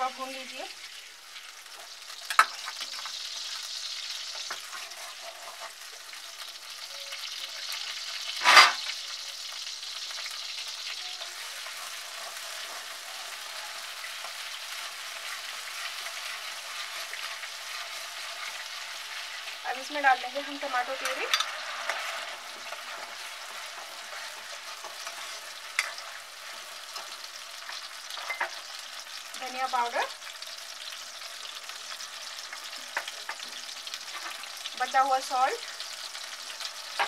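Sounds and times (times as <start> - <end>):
paste sizzling in hot fat: 0.0 - 37.0
metal spatula scraping a pan: 4.2 - 9.1, 10.9 - 29.1, 32.4 - 34.7.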